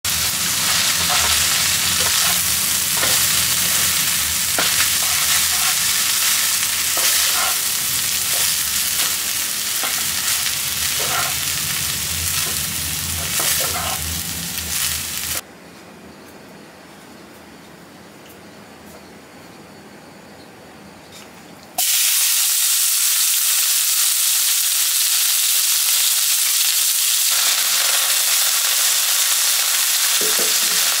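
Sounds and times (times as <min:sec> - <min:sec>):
rice sizzling in a pan: 0:00.1 - 0:15.4, 0:21.8 - 0:31.0
wooden spatula scraping a pan: 0:04.6 - 0:06.2.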